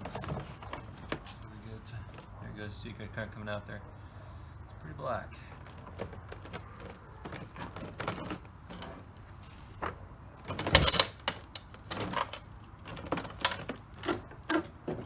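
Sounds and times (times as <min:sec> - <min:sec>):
clattering rustle: 0:00.0 - 0:02.4, 0:05.4 - 0:15.0
handling clicks and knocks: 0:00.0 - 0:02.4, 0:05.5 - 0:15.0.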